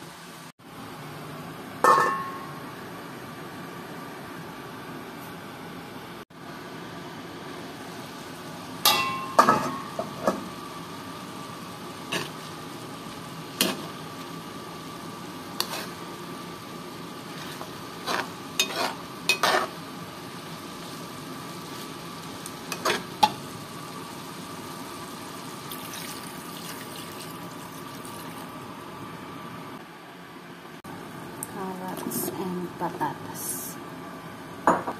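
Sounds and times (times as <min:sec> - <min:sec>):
glass lid clanking: 0:01.8 - 0:02.5
stew sizzling: 0:06.5 - 0:29.2
spoon scraping pan: 0:15.6 - 0:16.0, 0:17.3 - 0:19.8
water poured into pan: 0:25.7 - 0:28.5.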